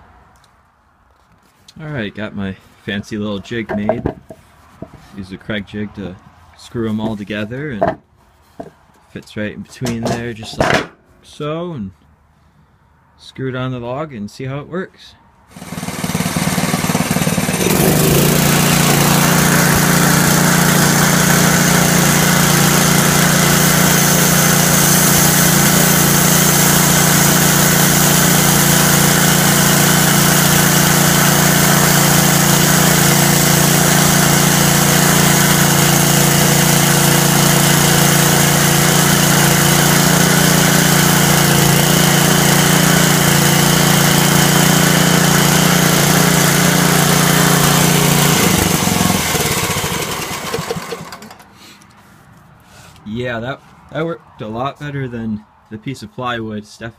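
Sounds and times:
band blade cutting log: 15.5s - 37.7s
sawmill engine running: 15.5s - 51.5s.

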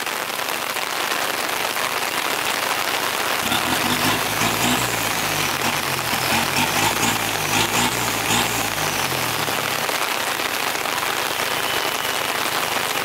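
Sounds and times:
steady rain on vehicles: 0.0s - 13.0s
truck engine running low: 3.2s - 10.1s.

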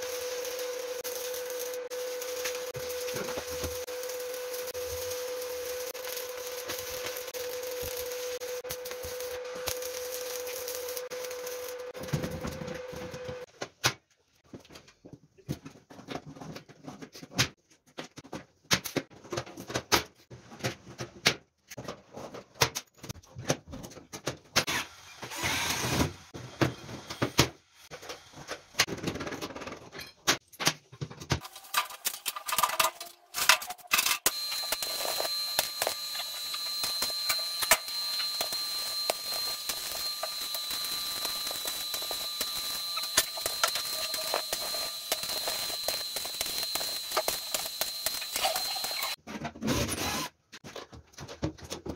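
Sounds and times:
arc welding crackling hiss: 0.0s - 12.1s, 34.2s - 49.2s.

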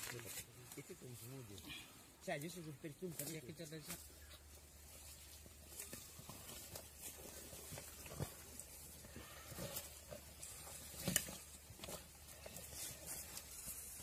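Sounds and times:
animals tearing carcass: 5.8s - 14.0s.

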